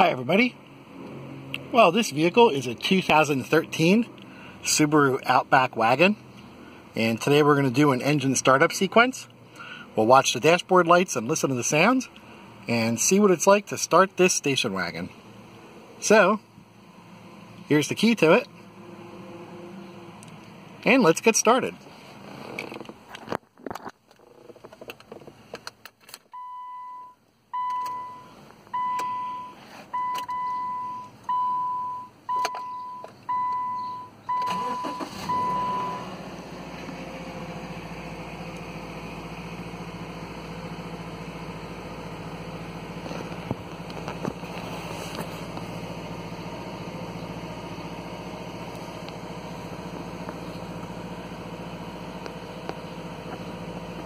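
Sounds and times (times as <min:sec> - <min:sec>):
car engine cranking and idling: 0:00.0 - 0:54.0
car ignition chime beeping: 0:26.4 - 0:36.1.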